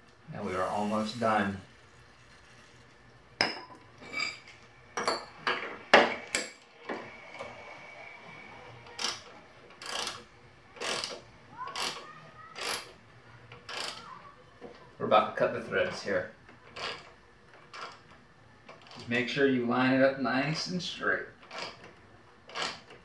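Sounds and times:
wrench scraping rasp: 8.9s - 13.0s, 13.6s - 14.1s, 16.7s - 18.0s, 21.4s - 21.9s, 22.5s - 23.0s.

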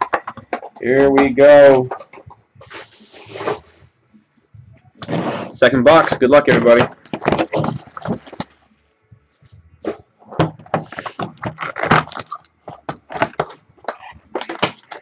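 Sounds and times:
cardboard rustling: 1.8s - 3.8s, 6.6s - 8.6s
plastic wrap crackling: 6.8s - 8.7s, 10.9s - 15.0s.

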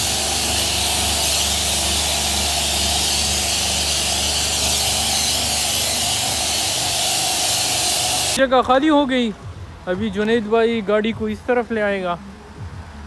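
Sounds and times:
pressure wand spraying hiss: 0.0s - 8.4s.

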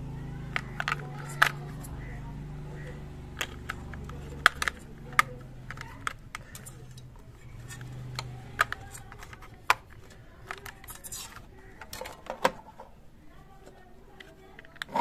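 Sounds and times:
plastic toy being handled: 0.4s - 2.2s, 2.8s - 15.0s
batteries clicking into place: 0.5s - 2.1s, 3.4s - 12.9s.

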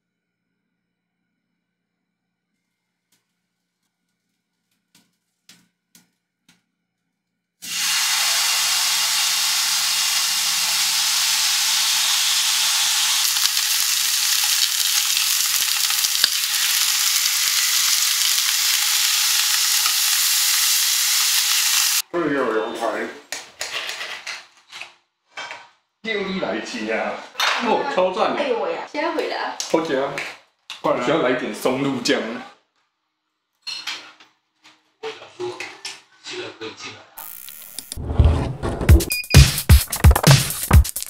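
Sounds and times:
meat sizzling in frying pan: 7.6s - 22.0s.

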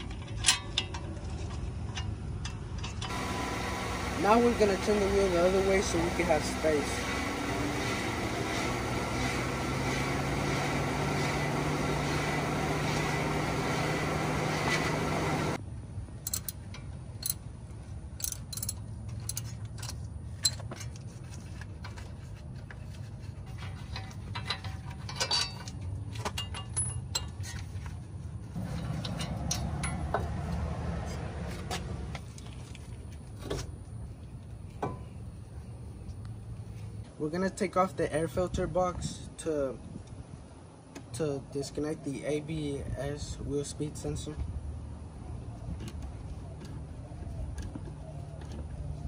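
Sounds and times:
mechanical hum: 1.2s - 37.2s
metal clicks and clinks of tools: 16.2s - 17.4s, 18.2s - 20.9s, 23.9s - 27.7s, 28.8s - 30.2s.

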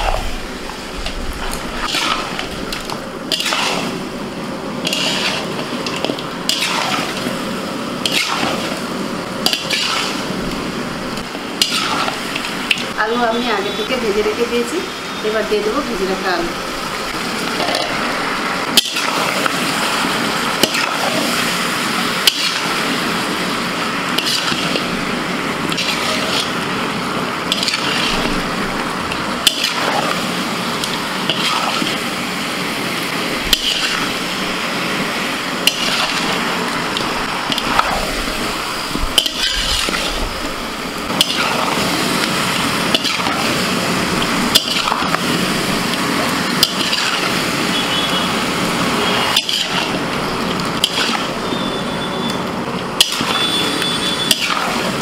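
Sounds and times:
curry sizzling in metal pan: 0.0s - 55.0s
spatula scraping metal pan: 4.8s - 5.5s, 49.0s - 50.0s.

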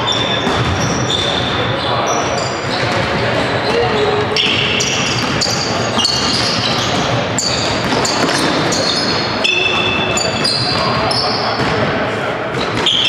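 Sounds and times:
sneakers squeaking on court floor: 0.0s - 11.8s, 12.5s - 13.0s
ball bouncing: 0.4s - 1.6s, 2.8s - 11.7s.

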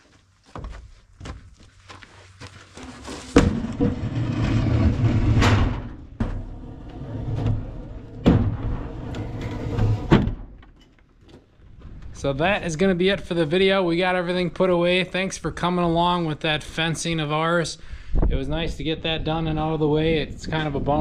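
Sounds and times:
light steps and knocks: 0.0s - 4.1s
wood scraping along pile: 2.6s - 10.1s
heavy thud of wooden posts: 3.3s - 4.6s, 8.2s - 8.8s.

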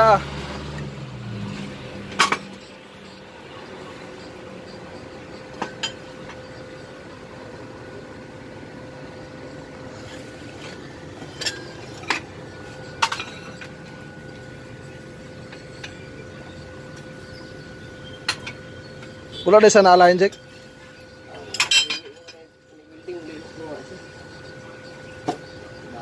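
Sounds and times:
metallic clinks of tools: 21.4s - 22.5s.

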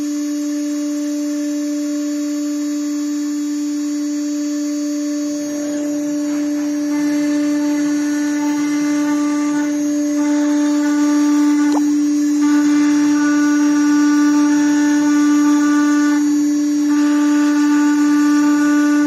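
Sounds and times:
router spindle whirring: 0.0s - 19.0s
drive motors whining: 2.2s - 19.0s.

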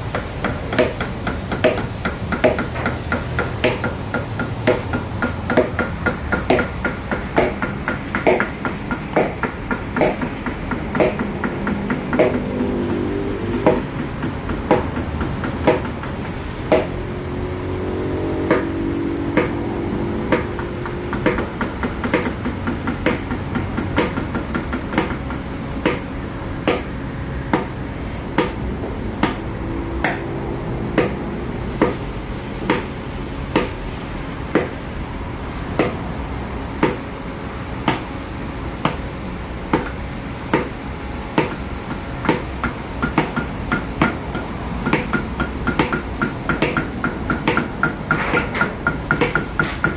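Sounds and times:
steady background hum: 0.0s - 49.9s
mallet tapping chisel into wood: 0.1s - 16.1s, 16.7s - 17.0s, 18.4s - 19.6s, 20.2s - 28.6s, 29.2s - 30.3s, 31.0s - 31.2s, 33.5s - 33.7s, 34.5s - 34.7s, 35.8s - 36.0s, 36.8s - 37.0s, 37.8s - 38.1s, 39.7s - 40.8s, 41.4s - 49.9s.

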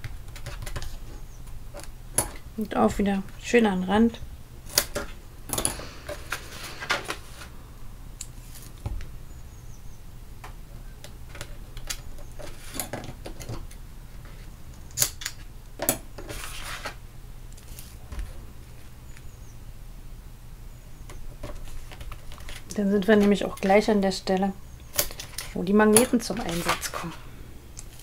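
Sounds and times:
paper rustling: 16.2s - 17.0s, 17.6s - 18.9s, 25.1s - 27.2s.

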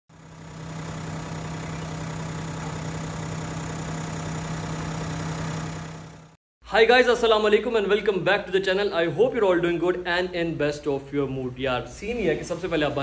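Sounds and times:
car engine idling: 0.2s - 6.3s.

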